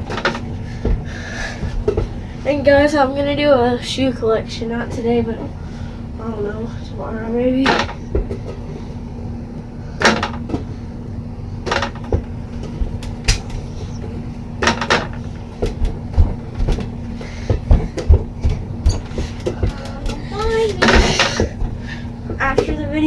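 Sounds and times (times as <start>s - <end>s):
steady low hum: 0.0s - 23.0s
ball knocking hoop and door: 11.6s - 13.4s
soft low thumps: 15.6s - 23.0s.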